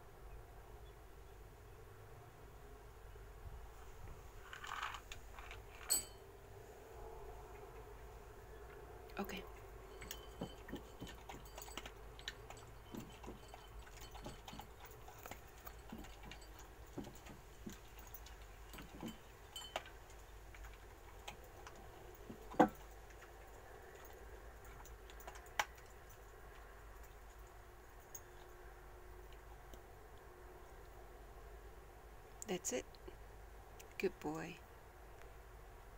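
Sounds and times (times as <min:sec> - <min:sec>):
dog crunching kibble: 0:04.4 - 0:05.8, 0:10.0 - 0:27.6
clinks against ceramic dish: 0:05.8 - 0:06.2, 0:09.9 - 0:19.9.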